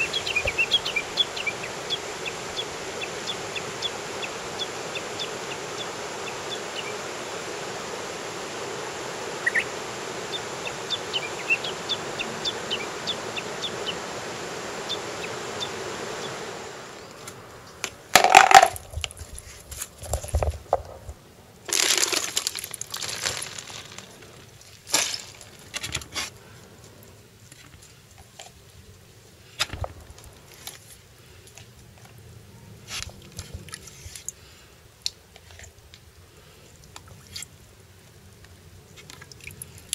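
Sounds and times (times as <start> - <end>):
small birds chirping: 0.0 - 17.8
river rushing: 0.0 - 18.8
plastic cooler bucket knocking: 18.2 - 18.8
plastic bag rustling: 18.2 - 26.3.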